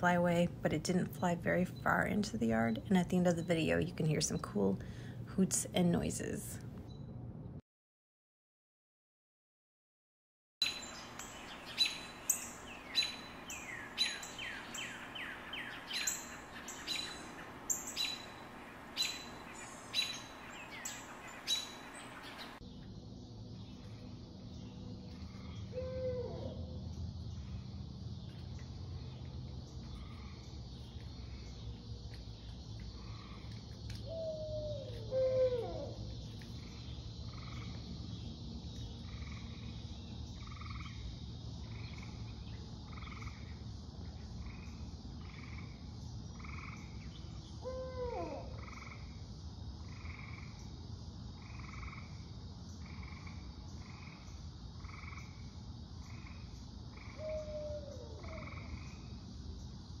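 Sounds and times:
owl hooting: 11.3 - 22.6, 25.7 - 26.7, 34.0 - 36.1, 47.6 - 48.7, 57.0 - 58.9.

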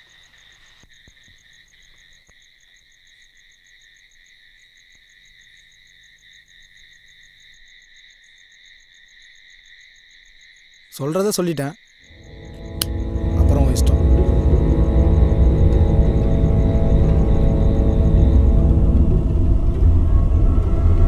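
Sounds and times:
insect chirping: 0.0 - 20.4
insects trilling: 0.0 - 20.4.

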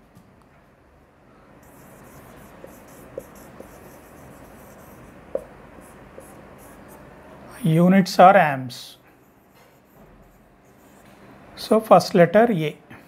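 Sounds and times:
marker squeaks: 1.6 - 7.1
marker rubbing on whiteboard: 1.6 - 7.2, 9.2 - 11.2.

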